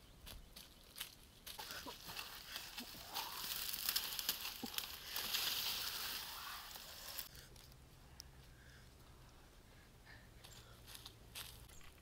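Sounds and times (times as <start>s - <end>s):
dry leaves rustling and crackling: 0.6s - 7.3s.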